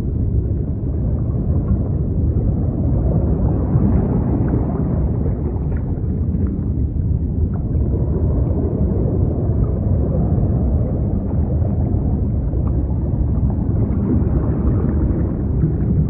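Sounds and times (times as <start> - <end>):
sea rumbling: 0.0 - 16.0.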